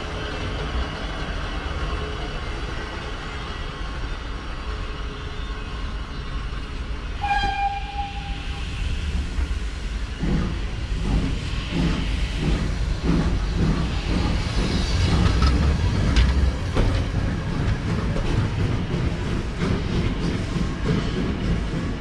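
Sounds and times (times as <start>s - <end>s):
train coaches rumbling: 0.0s - 22.0s
wheels clickety-clack on rails: 9.1s - 22.0s.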